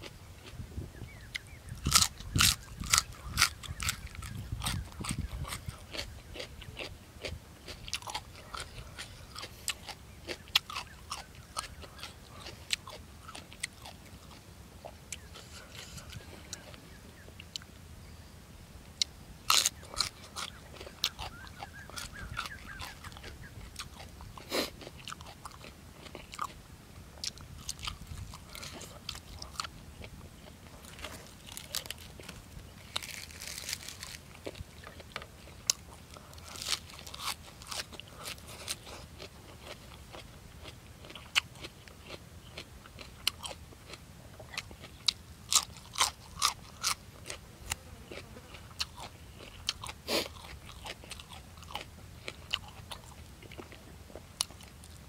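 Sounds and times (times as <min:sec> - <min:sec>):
person chewing and crunching: 0:00.0 - 0:17.7, 0:19.0 - 0:26.6, 0:27.2 - 0:55.0
leaf rustling: 0:31.0 - 0:34.5.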